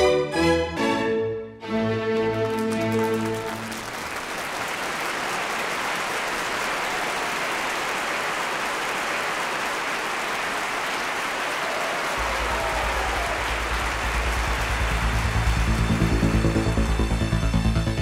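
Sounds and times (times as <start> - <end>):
string orchestra chord: 0.0 - 3.8, 12.2 - 18.0
audience applauding: 2.1 - 18.0
low bass drone: 12.2 - 18.0.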